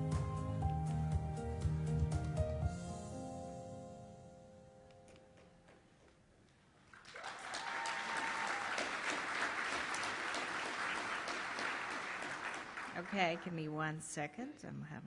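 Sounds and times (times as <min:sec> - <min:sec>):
audience applause: 0:06.9 - 0:13.7.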